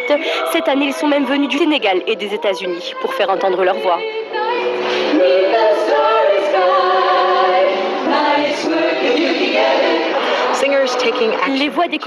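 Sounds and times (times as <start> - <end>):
choir singing: 2.2 - 11.8.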